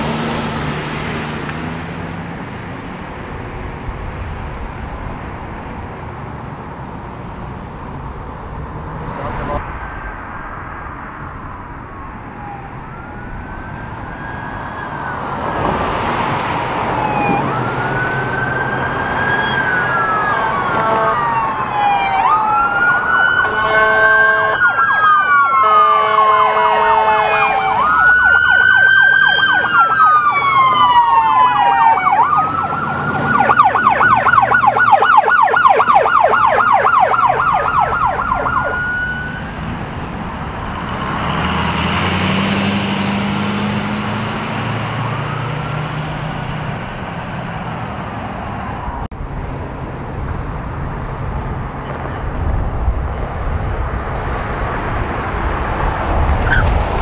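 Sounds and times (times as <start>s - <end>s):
engine and traffic noise: 0.0s - 57.0s
police sirens wailing: 11.1s - 49.1s, 53.1s - 57.0s
horn blasts: 20.7s - 21.4s, 23.4s - 24.7s, 25.6s - 27.6s.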